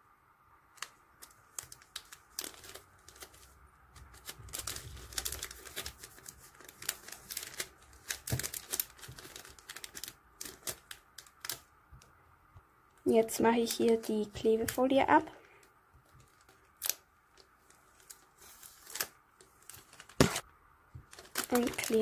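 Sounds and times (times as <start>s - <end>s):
plastic bag crinkling: 0.7s - 11.7s, 16.1s - 22.0s.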